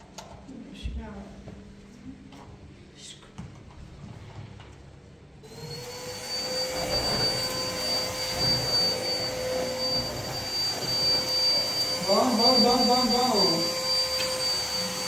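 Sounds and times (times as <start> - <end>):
small electric motor whine: 5.5 - 15.0.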